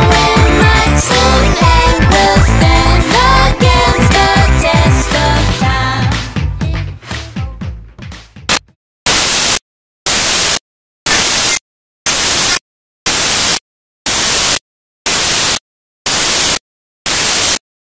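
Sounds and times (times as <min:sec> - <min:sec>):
white noise static bursts: 0:09.1 - 0:17.6.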